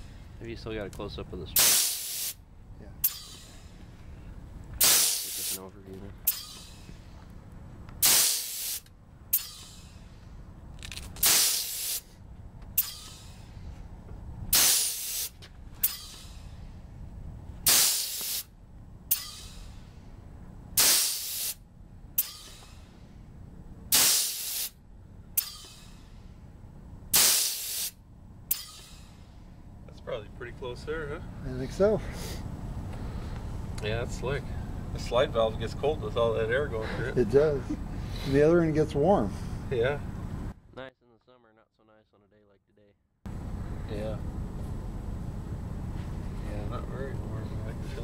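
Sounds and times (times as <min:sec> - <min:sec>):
loud hiss of exhausting air: 0:01.5 - 0:02.4, 0:04.8 - 0:05.6, 0:08.0 - 0:10.4, 0:11.2 - 0:12.2, 0:14.5 - 0:16.8, 0:17.6 - 0:18.5, 0:20.8 - 0:21.6, 0:23.9 - 0:24.8, 0:27.1 - 0:28.0, 0:32.0 - 0:33.7
shorter softer hiss: 0:01.6 - 0:02.4, 0:04.8 - 0:05.6, 0:08.0 - 0:10.4, 0:11.2 - 0:12.2, 0:14.5 - 0:16.8, 0:17.6 - 0:18.5, 0:20.8 - 0:21.6, 0:23.9 - 0:24.8, 0:27.1 - 0:29.5.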